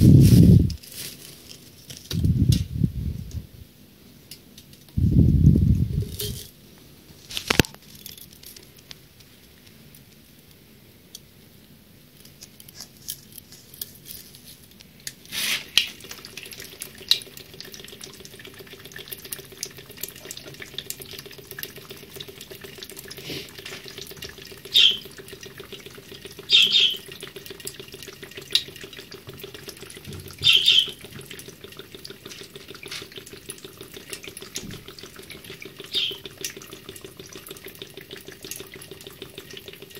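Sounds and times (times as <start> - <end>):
water running into sink: 15.3 - 39.9.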